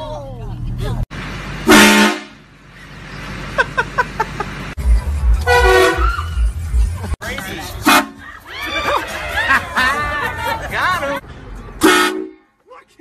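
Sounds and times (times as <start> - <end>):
train horn blast: 1.6 - 2.4, 5.4 - 6.1
music with heavy bass beat: 4.8 - 10.1.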